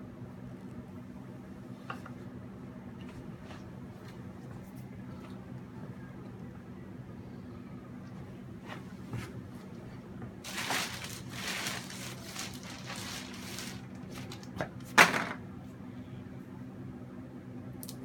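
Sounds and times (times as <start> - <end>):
rustling and scraping: 10.4 - 15.3.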